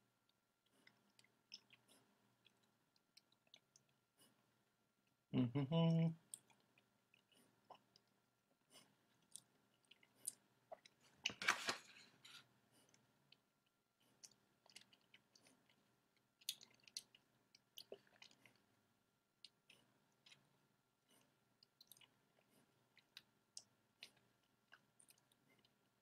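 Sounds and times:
wet mouth clicks and smacks: 16.4s - 17.2s.

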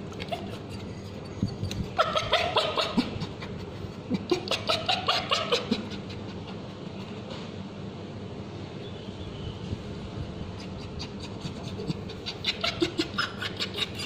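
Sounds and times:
small dog yelping: 0.1s - 6.2s, 10.6s - 14.0s.

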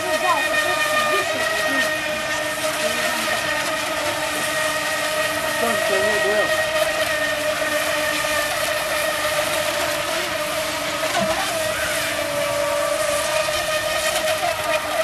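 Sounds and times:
electric motors whining: 0.0s - 15.0s.

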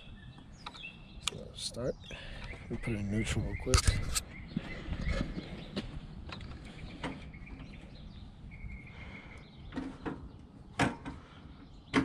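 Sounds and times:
motorcycle handling clicks and knocks: 9.7s - 11.2s.

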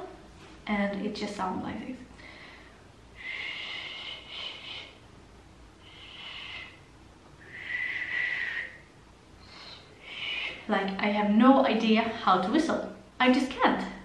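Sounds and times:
woman blowing breathy whistle: 7.4s - 8.8s.

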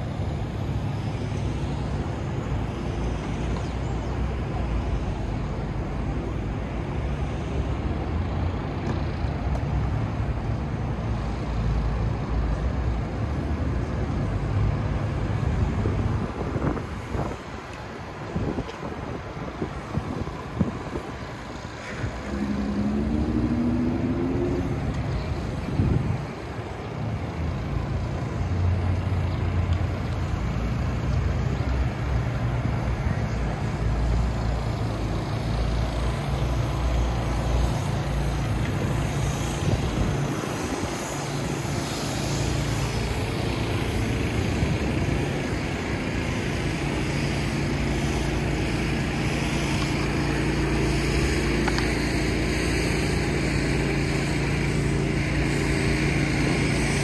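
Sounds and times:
steady engine hum: 0.0s - 57.0s
traffic rumble: 0.0s - 57.0s.

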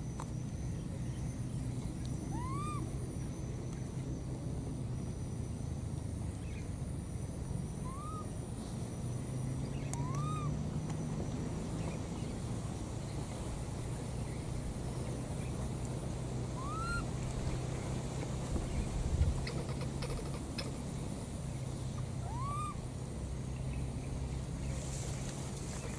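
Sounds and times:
steady low rumble: 0.0s - 25.9s
baby macaque coo calls: 2.2s - 2.9s, 7.8s - 8.3s, 9.9s - 10.6s, 16.5s - 17.1s, 22.2s - 22.8s.

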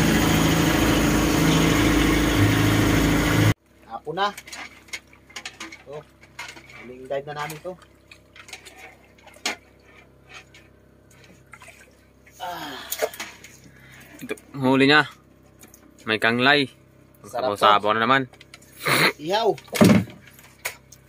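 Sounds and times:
water sounds: 0.0s - 3.6s, 4.2s - 16.2s.

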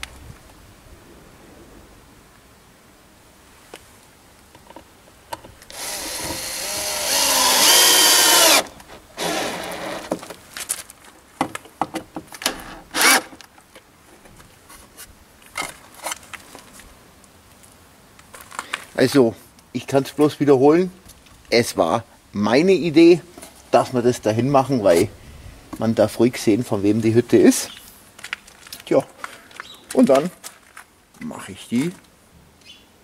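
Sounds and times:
drill clicks: 5.6s - 10.1s
cordless drill motor whine: 5.7s - 10.1s.

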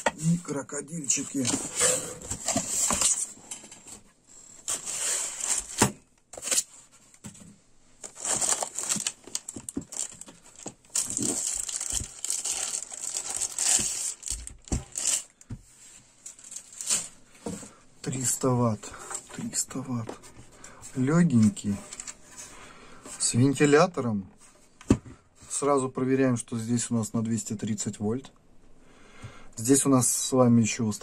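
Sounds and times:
plastic bag crinkling: 8.0s - 15.3s.

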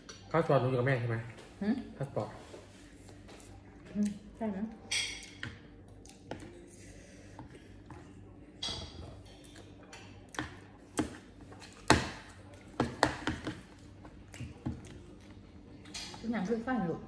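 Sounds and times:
cutlery clinking on plates: 4.9s - 5.6s.

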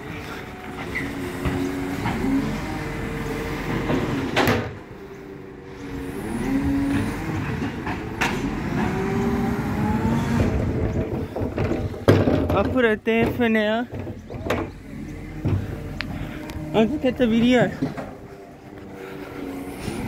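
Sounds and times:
hydraulic whine: 0.0s - 12.1s, 14.0s - 20.0s
garbage truck running: 0.0s - 20.0s.

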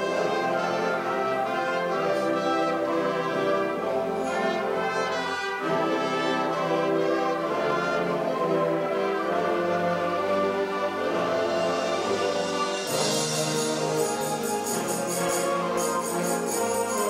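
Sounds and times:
band playing fanfare: 10.9s - 17.0s.

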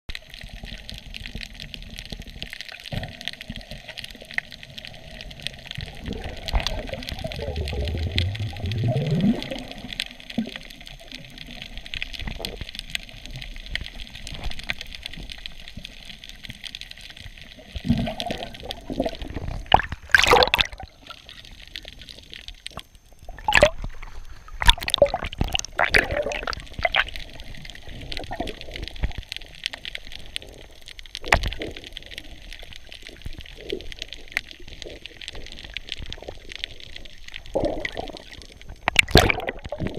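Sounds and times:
muffled underwater hiss: 0.1s - 39.9s
water sloshing and splashing: 5.8s - 10.6s, 17.6s - 29.3s, 31.2s - 39.9s.

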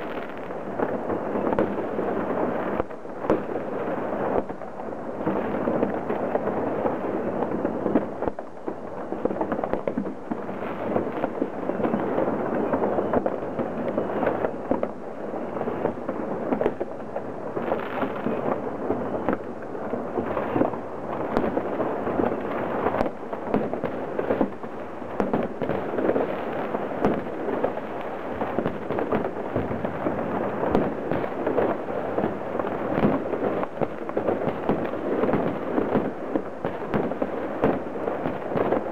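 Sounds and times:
fireworks crackling: 0.0s - 38.9s
firecracker bangs: 20.2s - 38.9s.

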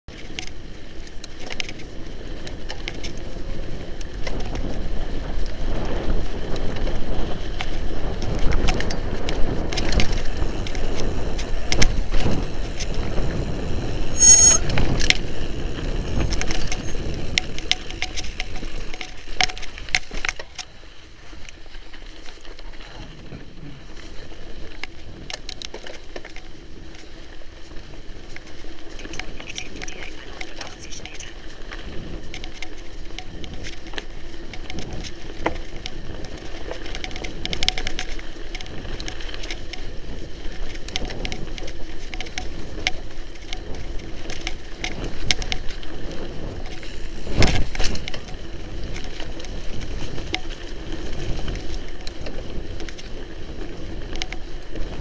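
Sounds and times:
bike rattling over bumps: 0.1s - 55.0s
bike tyres rumbling on dirt: 0.1s - 55.0s
high-pitched squeal: 14.0s - 14.8s.

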